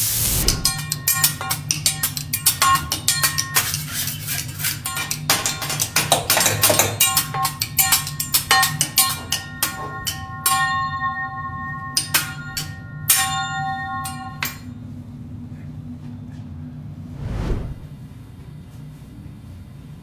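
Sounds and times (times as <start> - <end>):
low hum: 0.0 - 1.3, 16.0 - 18.2
metal spatulas clanging on griddle: 0.6 - 14.6.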